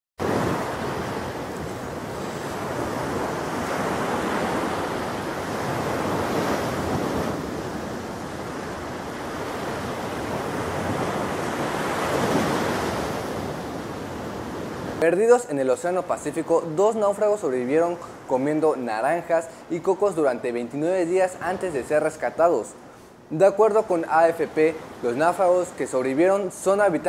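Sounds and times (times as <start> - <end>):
waves breaking on beach: 0.2 - 27.0.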